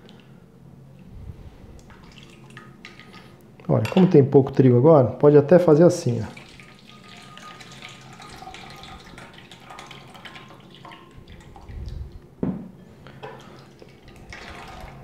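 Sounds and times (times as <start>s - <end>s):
water draining through sieve: 6.2s - 12.2s, 13.2s - 15.0s.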